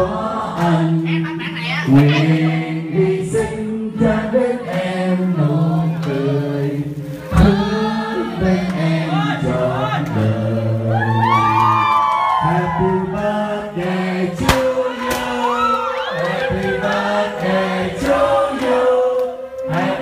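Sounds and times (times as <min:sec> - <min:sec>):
man singing into a microphone: 0:00.0 - 0:17.4
group singing together: 0:00.0 - 0:20.0
sharp knock: 0:14.4 - 0:15.3.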